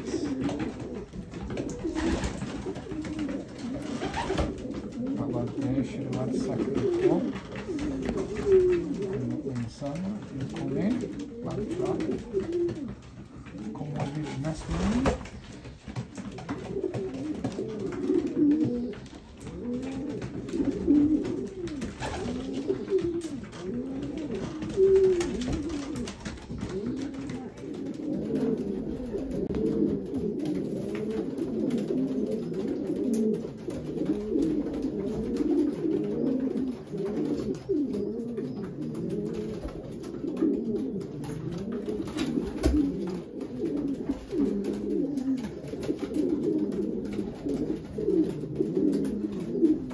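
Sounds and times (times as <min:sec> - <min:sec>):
pigeons cooing: 0:00.0 - 0:49.9.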